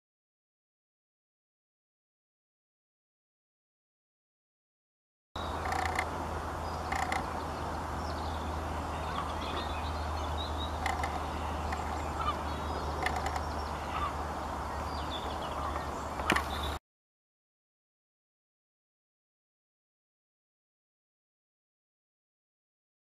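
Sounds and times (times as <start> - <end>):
low outdoor hum: 5.4 - 16.8
waterfowl calling: 5.4 - 16.8
sharp clicks: 6.9 - 7.3.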